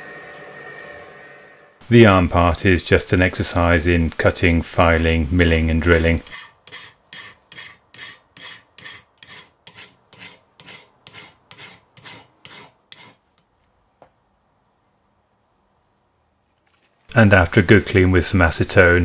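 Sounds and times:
hand file scraping metal: 0:04.3 - 0:13.2.

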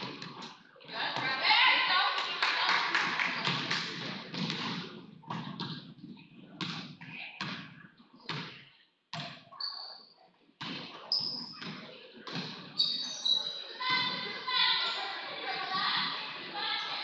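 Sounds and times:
sneaker squeaks: 0:09.2 - 0:15.2.

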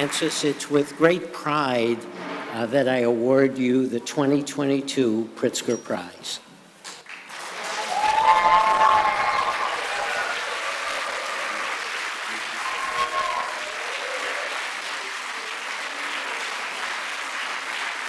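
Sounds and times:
audience applauding: 0:00.0 - 0:00.5, 0:07.0 - 0:18.0.

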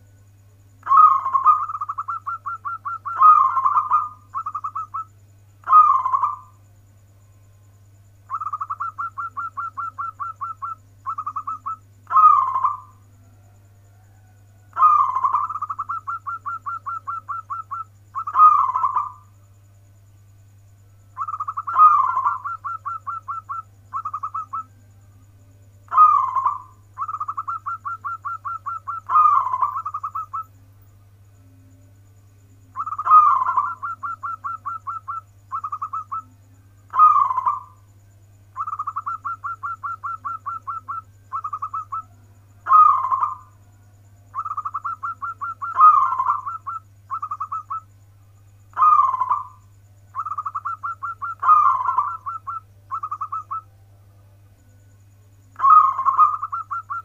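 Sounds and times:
dove rolling coo: 0:00.8 - 0:06.5, 0:08.3 - 0:19.2, 0:21.2 - 0:24.7, 0:25.9 - 0:30.5, 0:32.7 - 0:37.8, 0:38.6 - 0:43.5, 0:44.3 - 0:47.9, 0:48.7 - 0:53.6, 0:55.5 - 0:57.0.

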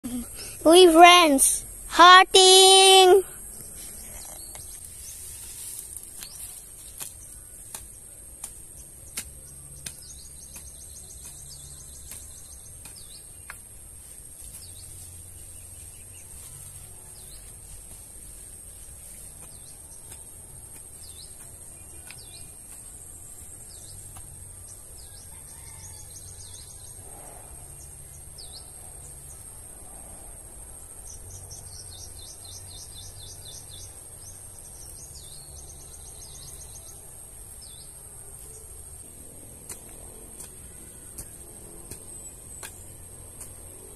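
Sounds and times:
insects droning: 0:00.0 - 0:43.9
birds chirping: 0:06.0 - 0:13.6.

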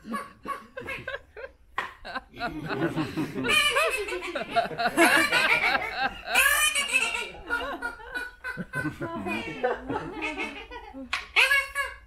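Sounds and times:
audience laughing: 0:00.0 - 0:11.1.

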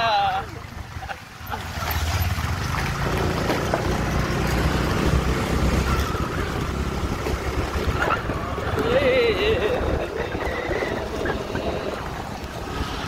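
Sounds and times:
motorbike engine running: 0:01.9 - 0:11.8
wind rushing over microphone: 0:02.5 - 0:13.0.

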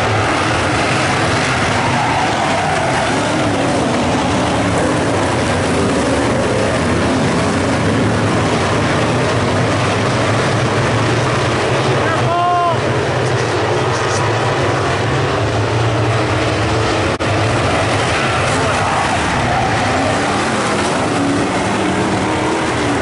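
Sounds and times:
race car engines roaring: 0:00.0 - 0:23.0.

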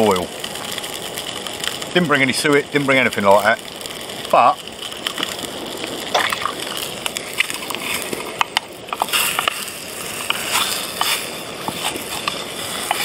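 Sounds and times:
campfire crackling: 0:00.0 - 0:13.0
sausages sizzling: 0:00.0 - 0:13.0
spatula scraping pan: 0:09.0 - 0:13.0.

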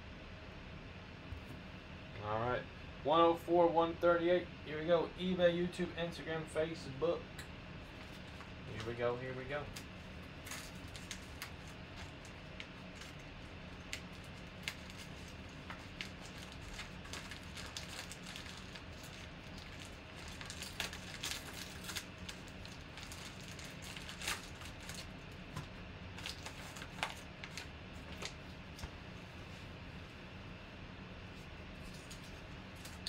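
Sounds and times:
low steady hum: 0:00.0 - 0:33.0
padded mailer crinkling: 0:09.6 - 0:28.5.

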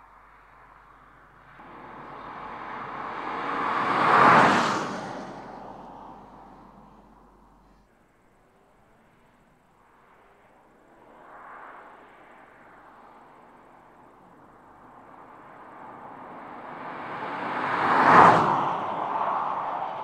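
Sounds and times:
car driving past: 0:00.2 - 0:07.8, 0:15.3 - 0:20.0.

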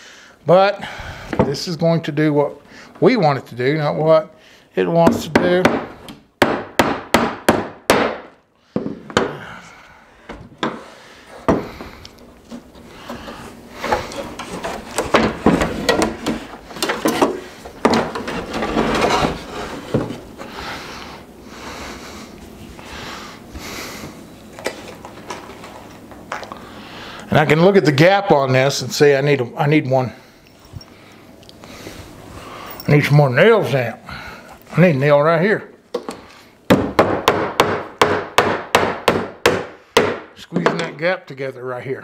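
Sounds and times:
hammer striking nail into wood: 0:05.1 - 0:08.3, 0:36.7 - 0:40.3.

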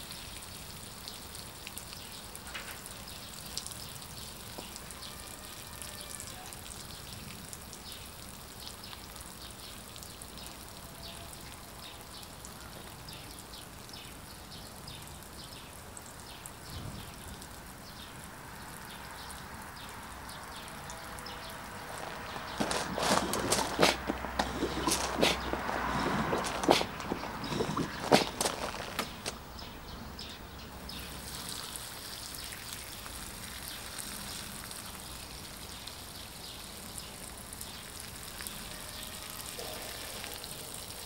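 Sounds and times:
water spray pattering on gravel: 0:20.5 - 0:29.4, 0:30.9 - 0:41.0.

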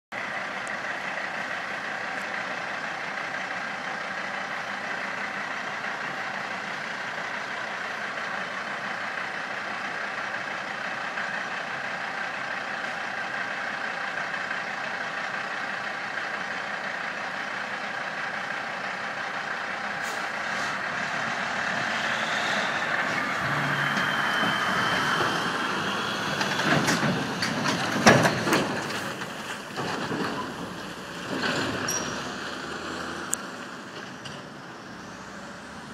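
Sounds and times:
diesel truck engine: 0:00.1 - 0:35.9.

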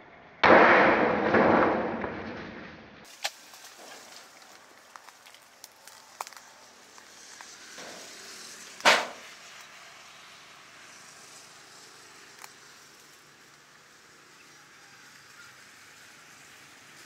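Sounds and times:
cleaver cracking plastic bottle: 0:03.1 - 0:07.5.

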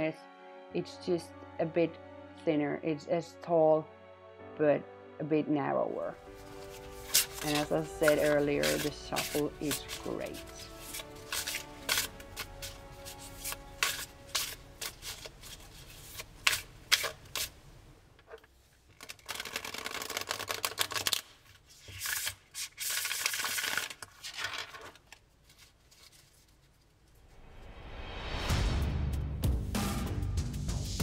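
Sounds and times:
cards being shuffled: 0:06.3 - 0:17.6, 0:18.2 - 0:27.1.

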